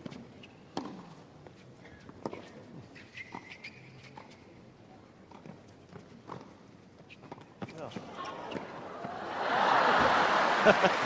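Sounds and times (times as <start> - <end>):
faint crowd background: 4.2 - 11.0.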